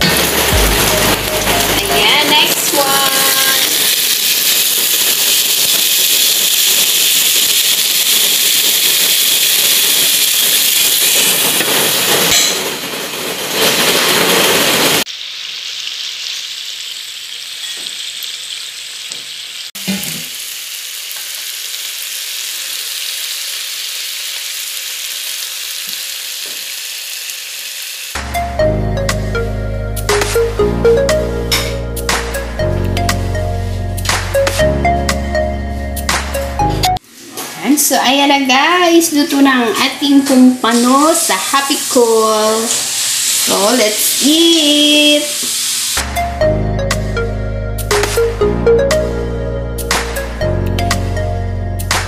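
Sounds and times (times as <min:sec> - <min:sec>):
fish sizzling in a pan: 0:00.0 - 0:28.2, 0:39.2 - 0:46.1.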